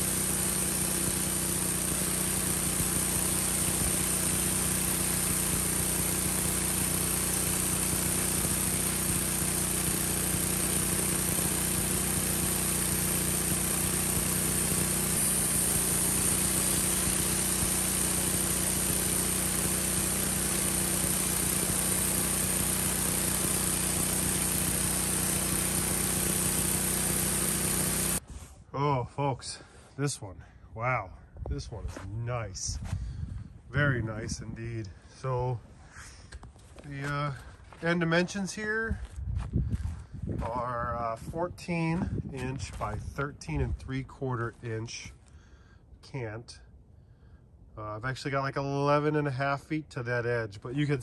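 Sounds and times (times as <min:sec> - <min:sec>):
band sawmill cutting log: 0:00.0 - 0:28.2.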